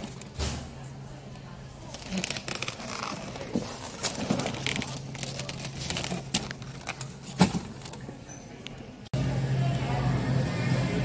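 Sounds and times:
crinkling handling noise: 1.8s - 8.3s.

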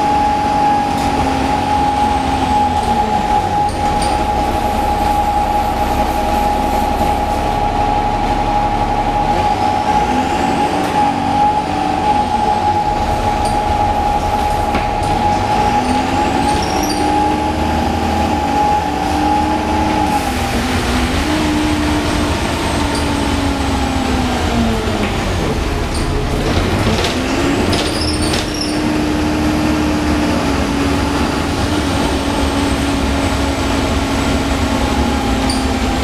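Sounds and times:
steady high whine: 0.0s - 27.8s
bus diesel engine: 0.0s - 36.0s.

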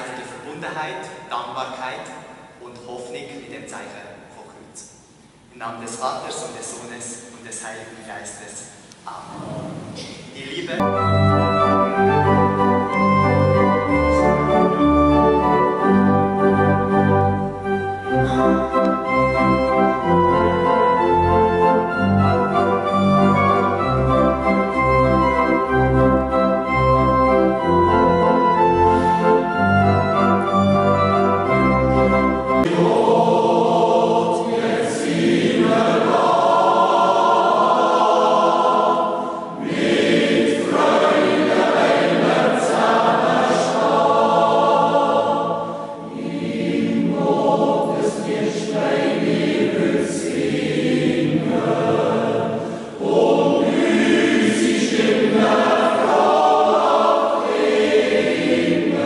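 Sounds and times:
choir yodeling: 10.8s - 31.4s, 32.6s - 59.0s
church organ chord: 10.8s - 45.6s.

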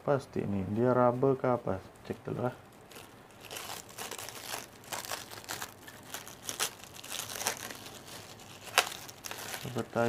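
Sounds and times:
plastic wrapping crinkling: 2.8s - 10.0s.

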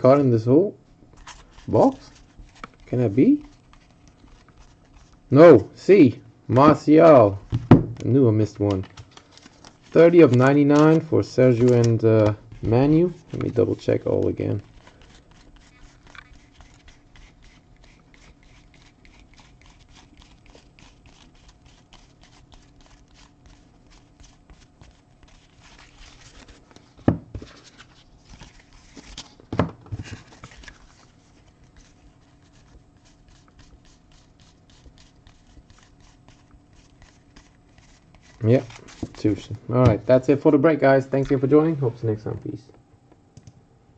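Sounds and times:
card edges clicking: 8.0s - 12.8s.

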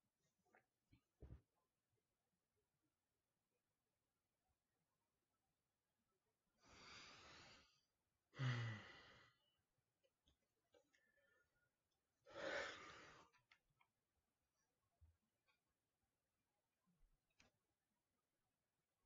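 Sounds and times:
person breathing out: 6.6s - 7.8s, 8.4s - 9.4s, 12.3s - 13.3s
person sighing: 8.4s - 9.3s.

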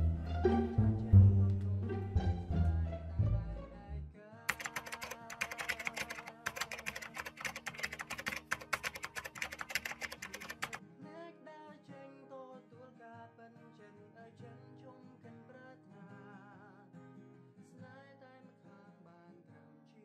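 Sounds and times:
plucked guitar music: 0.0s - 4.0s
keyboard typing clicks: 4.5s - 10.8s.

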